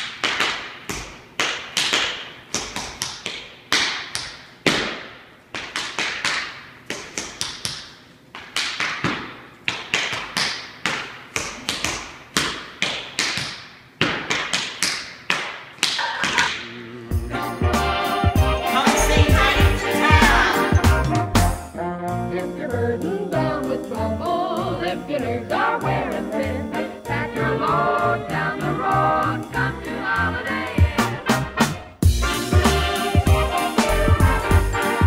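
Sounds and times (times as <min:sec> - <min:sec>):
music: 0:17.0 - 0:35.0.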